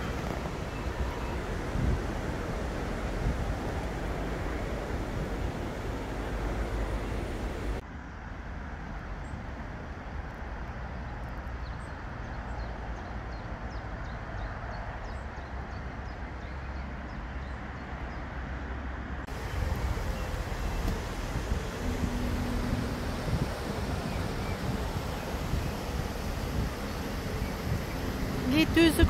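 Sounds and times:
stream rushing: 0.0s - 7.8s, 19.3s - 29.0s
wind buffeting microphone: 0.0s - 7.8s, 19.3s - 29.0s.

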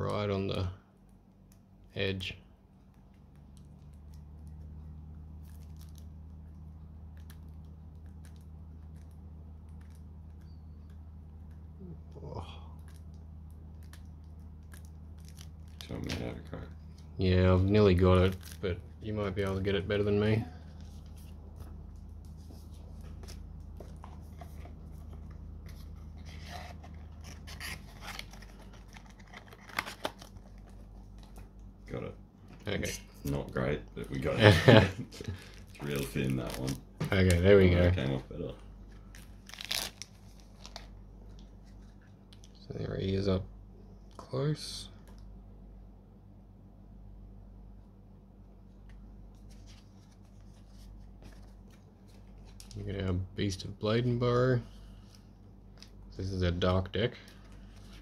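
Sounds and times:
steady low hum: 0.0s - 58.0s
fingernails crinkling plastic wrap: 39.0s - 40.9s.

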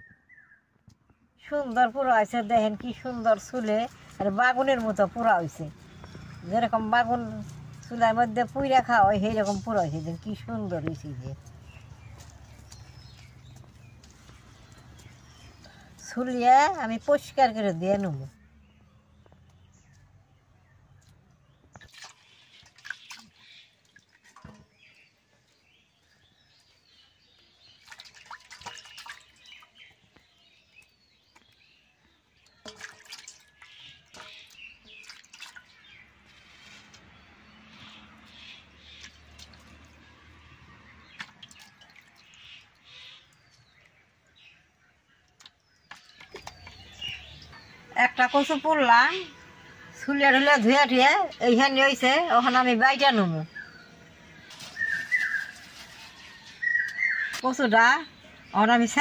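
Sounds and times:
water dripping: 0.8s - 18.3s, 20.9s - 25.0s, 27.5s - 44.4s, 45.0s - 48.6s
water splashing in bowl: 1.6s - 16.1s, 21.0s - 25.0s, 27.6s - 31.6s, 32.3s - 44.4s, 45.1s - 47.6s.

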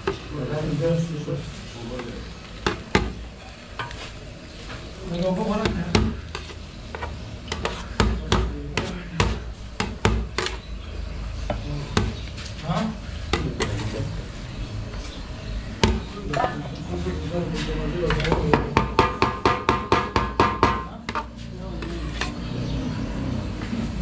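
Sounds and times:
ladle scraping steel tray: 0.8s - 8.0s, 21.1s - 22.5s.

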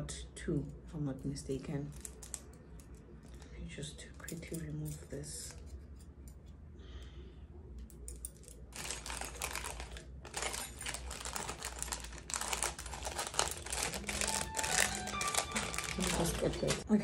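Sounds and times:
packaging crinkling: 8.7s - 16.9s.

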